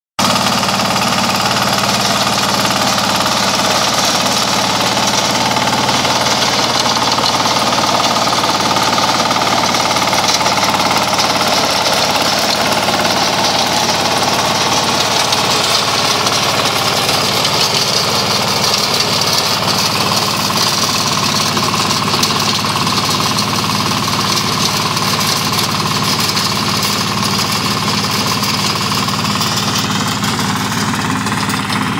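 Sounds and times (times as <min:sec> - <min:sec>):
diesel engine running under load: 0:00.2 - 0:31.9
rotary tiller churning soil: 0:00.2 - 0:31.9.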